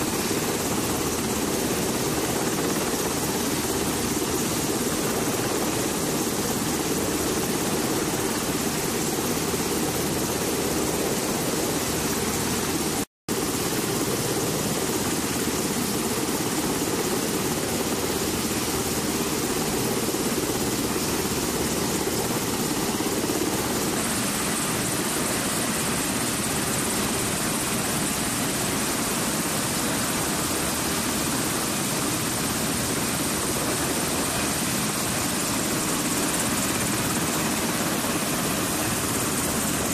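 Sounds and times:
helicopter engines and rotor: 0:00.0 - 0:39.9.

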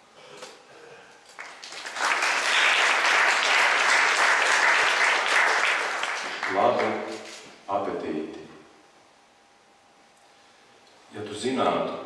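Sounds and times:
audience applause: 0:01.4 - 0:07.2.

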